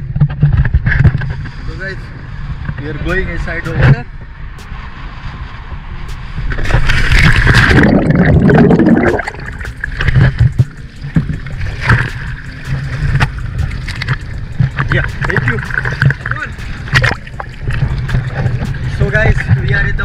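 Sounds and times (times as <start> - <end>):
low steady rumble: 2.0 - 20.0
underwater bubbles rushing: 6.5 - 19.8
water sloshing and dripping: 6.6 - 19.7
loud splash into water: 6.7 - 9.7.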